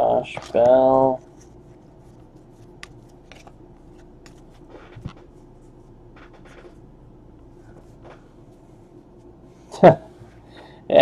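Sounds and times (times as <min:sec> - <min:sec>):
steady low hum: 0:00.0 - 0:11.0
paper cards rustling and flicking: 0:00.3 - 0:06.8.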